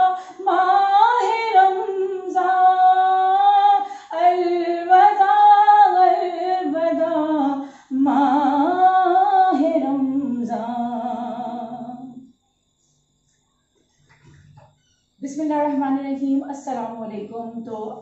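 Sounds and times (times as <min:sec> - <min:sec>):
woman singing unaccompanied: 0:00.0 - 0:12.3, 0:15.2 - 0:18.0.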